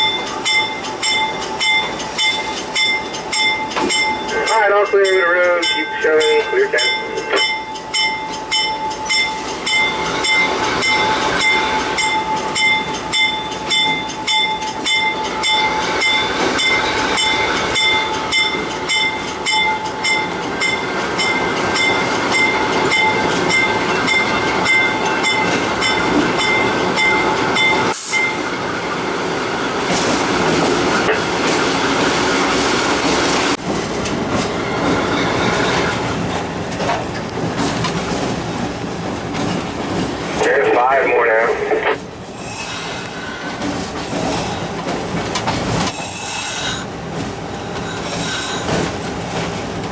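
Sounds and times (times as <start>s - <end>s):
locomotive bell ringing: 0.0s - 29.7s
diesel locomotive running: 0.0s - 49.9s
wheel and rail noise: 0.0s - 49.9s.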